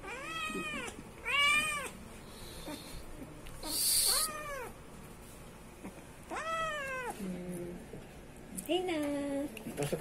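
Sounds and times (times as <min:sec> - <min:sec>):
kitten meowing: 0:00.0 - 0:02.0, 0:03.6 - 0:04.7, 0:06.3 - 0:07.2.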